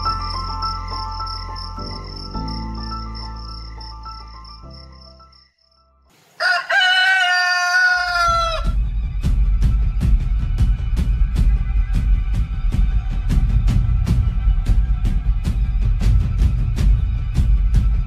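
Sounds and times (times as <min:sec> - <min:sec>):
soft sustained music: 0:00.0 - 0:05.6
crickets chirping: 0:00.0 - 0:06.7
rooster crowing: 0:06.4 - 0:08.8
music with heavy low beat: 0:08.6 - 0:18.0.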